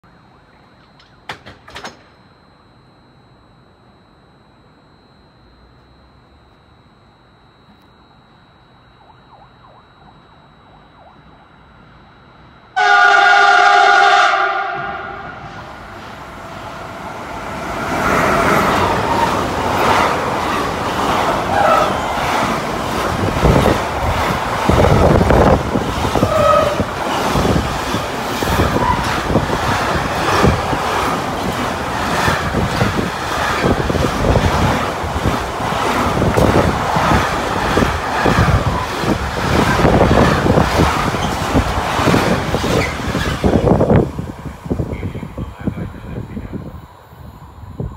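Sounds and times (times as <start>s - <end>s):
train rumble: 11.0s - 47.9s
freight train horn: 12.8s - 15.9s, 21.4s - 22.5s, 24.7s - 27.6s, 28.4s - 29.4s
wheels clattering over rail joints: 18.6s - 44.0s.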